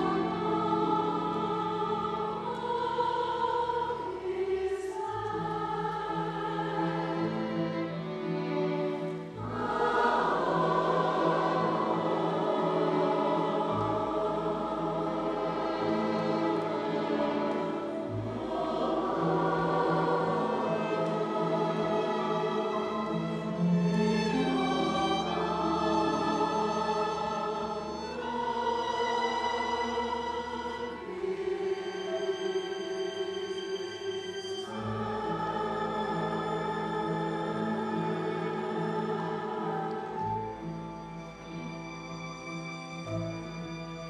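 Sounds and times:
mixed choir singing: 0.0s - 41.7s.

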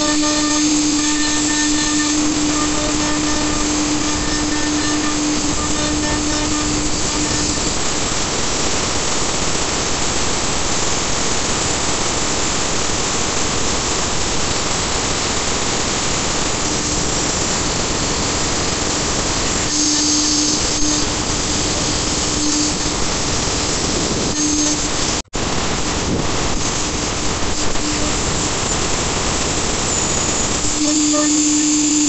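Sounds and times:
router cutting wood: 0.0s - 10.1s, 26.5s - 32.0s
low steady hum: 0.0s - 32.0s.

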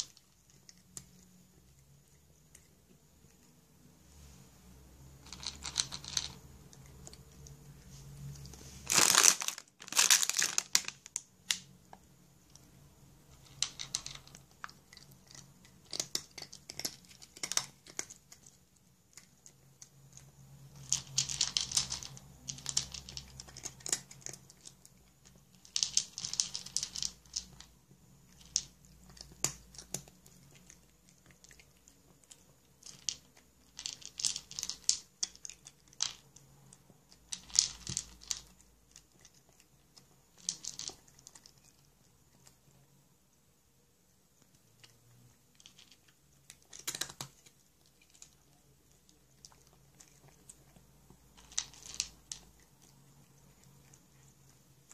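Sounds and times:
cat chewing dry kibble: 0.0s - 3.6s, 5.1s - 43.4s, 44.0s - 54.9s
plastic pouch rustling: 8.8s - 11.1s.

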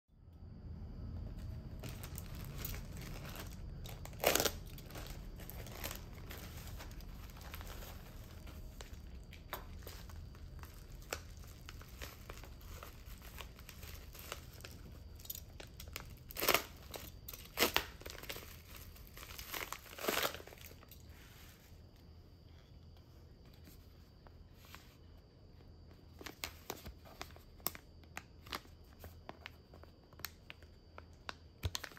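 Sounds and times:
plastic packaging crinkling: 1.2s - 21.1s, 26.1s - 31.9s
plastic tearing: 1.8s - 20.9s.

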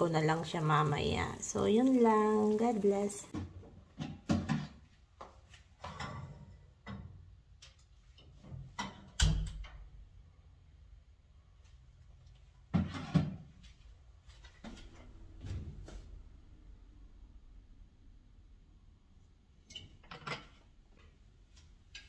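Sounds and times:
dishes and utensils clattering: 5.8s - 7.2s, 19.6s - 20.6s.

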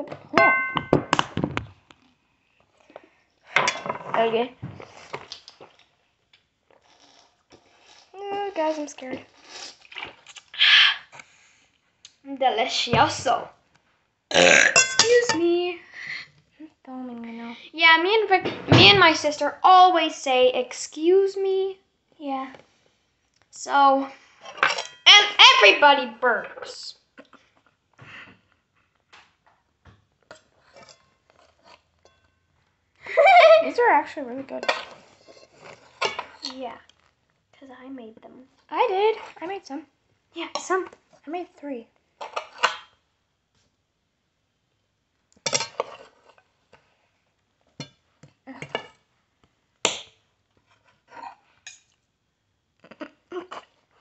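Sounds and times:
fork and knife clinking on plate: 0.4s - 1.0s, 14.7s - 15.4s
soft chewing: 4.8s - 8.2s, 9.2s - 11.4s, 52.8s - 54.0s.

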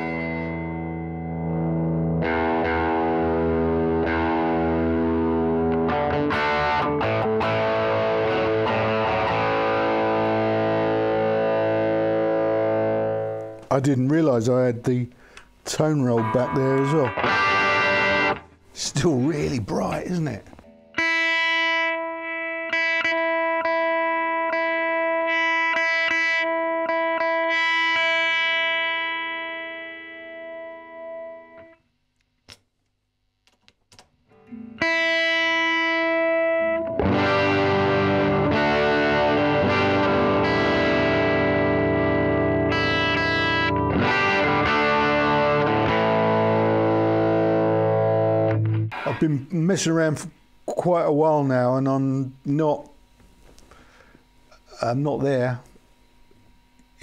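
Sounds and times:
electric guitar chords: 0.0s - 14.1s, 15.2s - 31.8s, 33.9s - 57.0s
amp knobs clicking: 33.5s - 34.6s.

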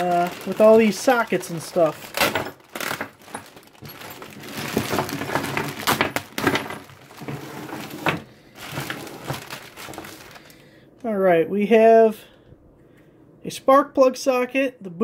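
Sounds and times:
plastic bag crinkling: 0.0s - 10.8s
metal tools clinking on wood: 0.4s - 8.9s.

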